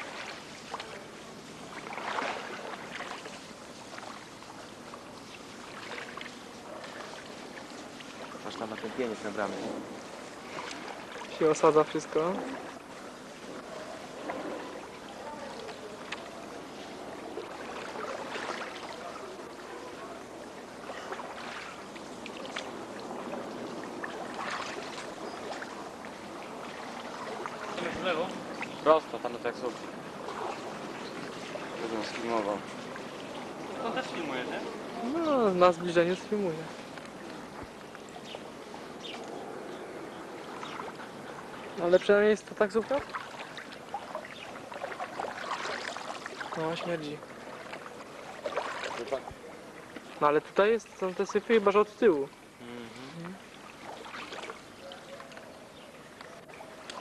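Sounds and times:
water dripping: 0:00.0 - 0:39.4, 0:40.1 - 0:52.5, 0:53.2 - 0:57.0
oar paddling through water: 0:00.0 - 0:57.0
loud splash: 0:01.7 - 0:04.2, 0:17.3 - 0:19.4, 0:20.8 - 0:28.8, 0:30.1 - 0:34.4, 0:42.8 - 0:49.3, 0:53.8 - 0:54.6.

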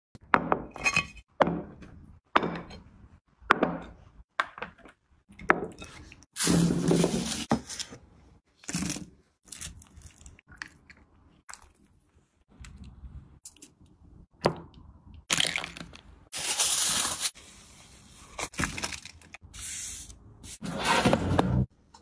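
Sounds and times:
aluminium foil crinkling: 0:16.4 - 0:17.4
handling noise knocks and scrapes: 0:20.5 - 0:21.7.

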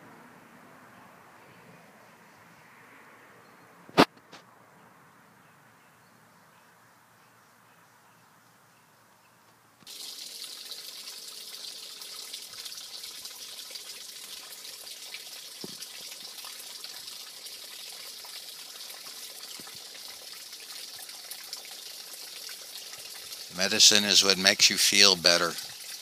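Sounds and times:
water trickling: 0:09.8 - 0:26.0.

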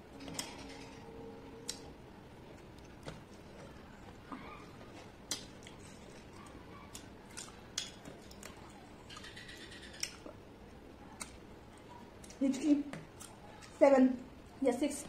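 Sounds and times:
chewing: 0:02.6 - 0:13.8
sharp wet clicks: 0:06.4 - 0:10.3.

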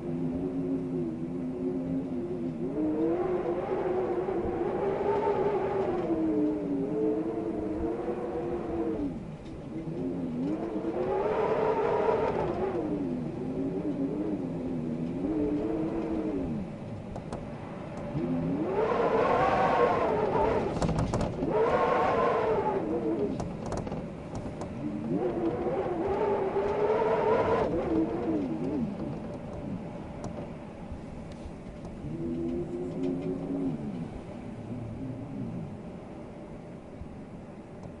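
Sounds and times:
wind howling in gusts: 0:00.0 - 0:38.0
faint clicks: 0:31.3 - 0:34.1.

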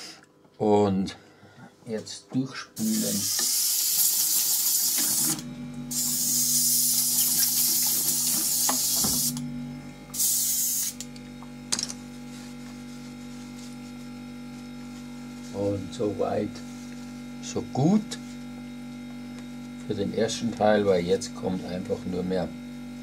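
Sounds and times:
airbrush spray hissing: 0:02.8 - 0:09.4, 0:10.1 - 0:11.0
steady low hum: 0:05.2 - 0:23.0.

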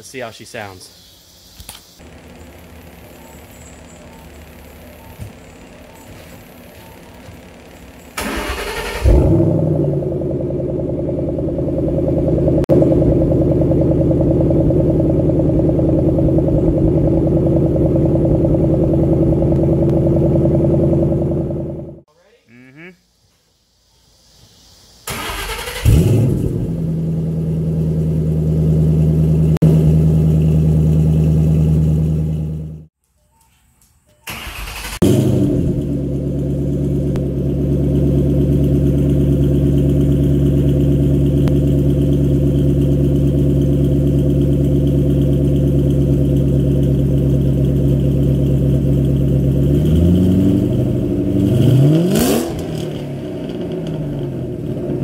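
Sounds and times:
car engine idling and revving: 0:02.0 - 0:22.1, 0:25.1 - 0:33.0, 0:34.4 - 0:55.0.

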